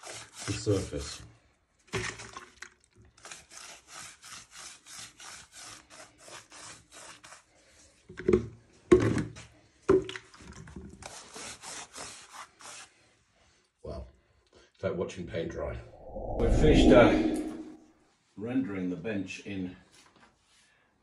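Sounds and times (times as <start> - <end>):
brush scrubbing stone: 0.0 - 1.2, 3.2 - 8.0, 11.0 - 12.9.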